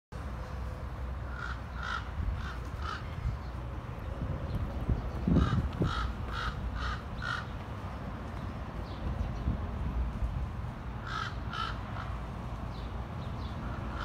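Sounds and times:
crows cawing: 1.3 - 3.2, 5.3 - 7.6, 11.0 - 12.2, 13.8 - 14.0.

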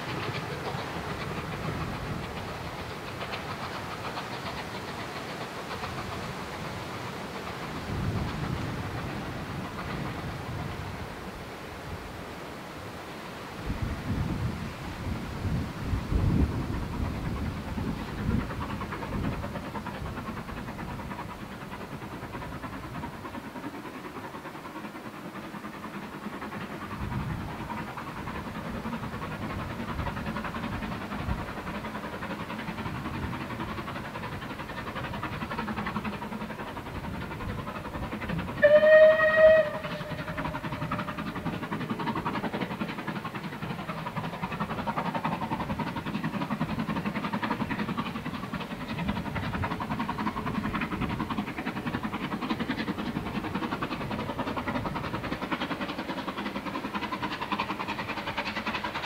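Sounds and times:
steam train rumbling: 0.0 - 59.0
steam locomotive whistle: 38.6 - 40.6.

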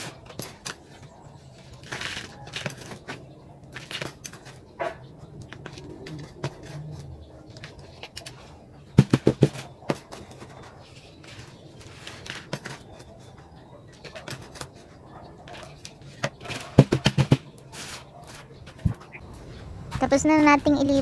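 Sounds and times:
trowel scraping potting mix: 5.6 - 19.0.

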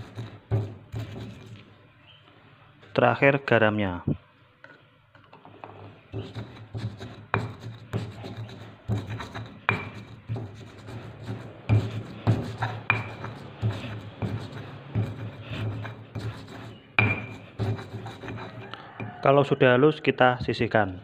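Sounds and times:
stone pestle grinding in mortar: 0.0 - 1.6, 5.6 - 19.3
stone-on-stone knocks: 8.9 - 10.6, 11.7 - 15.8, 17.0 - 18.4.

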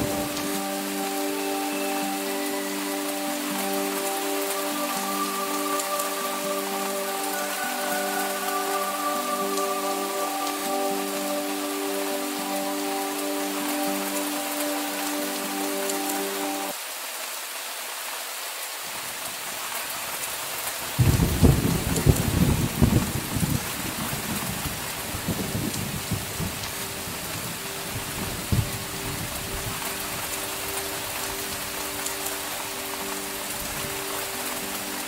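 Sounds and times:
heavy rain: 0.0 - 35.0
thunder rumbling: 21.0 - 29.8.

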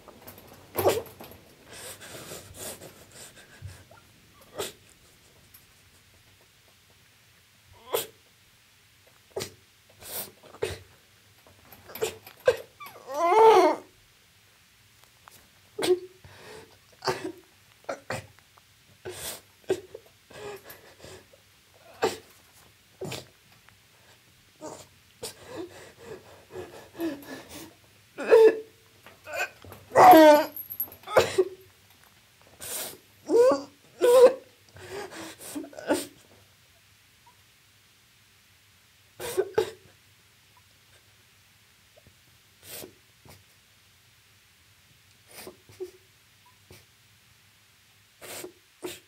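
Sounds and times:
person sobbing: 25.2 - 28.7, 29.3 - 31.6.

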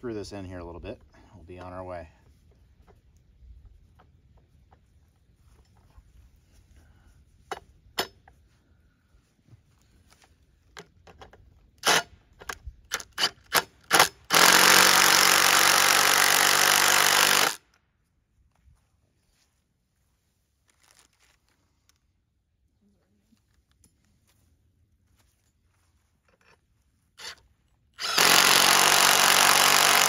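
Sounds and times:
impact driver trigger bursts: 13.0 - 17.6, 28.0 - 30.0
impact driver hammering: 13.5 - 17.6, 28.0 - 30.0.

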